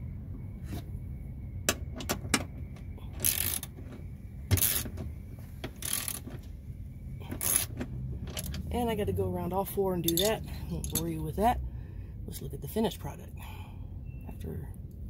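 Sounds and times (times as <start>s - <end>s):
low hum: 0.0s - 15.0s
ratchet wrench clicking: 3.2s - 3.7s, 4.6s - 4.9s, 5.8s - 6.2s, 7.3s - 7.7s, 10.1s - 11.1s.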